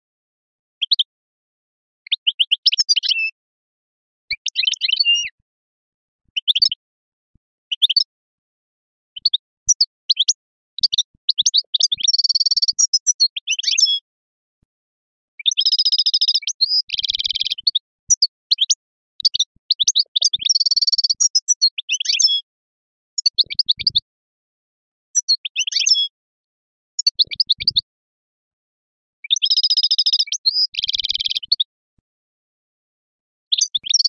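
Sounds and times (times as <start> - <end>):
goldfinch singing: 2.1 - 3.4, 4.3 - 5.3, 9.2 - 14.0, 15.4 - 22.5, 23.2 - 24.1, 25.2 - 26.2, 27.0 - 27.9, 29.2 - 31.7, 33.5 - 34.0.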